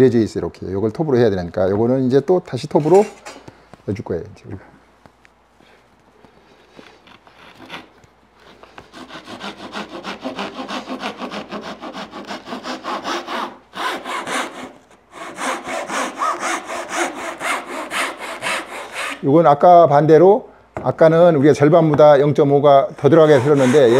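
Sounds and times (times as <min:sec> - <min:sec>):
hand saw cutting wood: 0:07.1 - 0:07.9, 0:08.9 - 0:19.3, 0:23.0 - 0:23.9.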